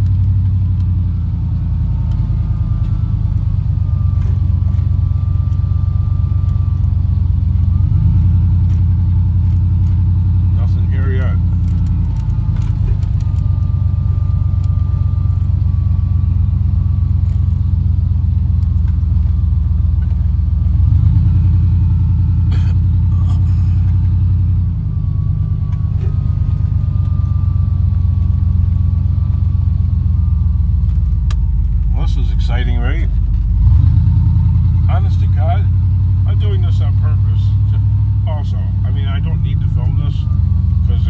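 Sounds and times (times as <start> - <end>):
road rumble: 0.0 - 41.0
truck engine: 0.0 - 41.0.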